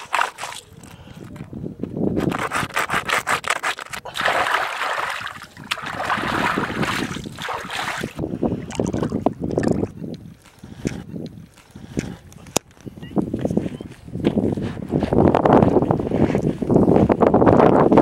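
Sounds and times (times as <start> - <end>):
fish scraped against rock: 0.0 - 1.3, 2.2 - 5.3
water splashing: 4.0 - 10.0.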